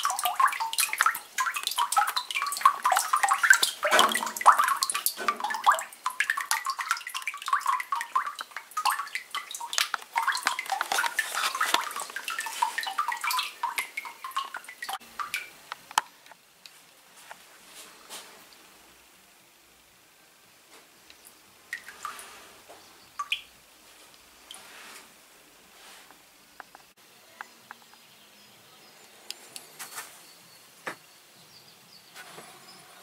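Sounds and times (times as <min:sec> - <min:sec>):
water splashing and dripping on metal: 0:00.0 - 0:16.8, 0:21.1 - 0:24.7.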